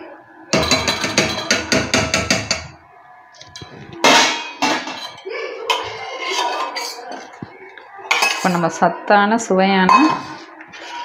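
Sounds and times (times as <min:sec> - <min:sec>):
steel utensils clanging: 0:00.6 - 0:02.7, 0:03.4 - 0:07.4.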